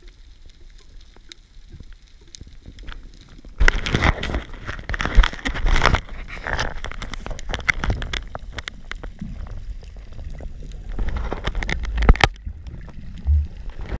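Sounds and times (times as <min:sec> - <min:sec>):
sharp clicks and knocks: 0:11.0 - 0:12.8.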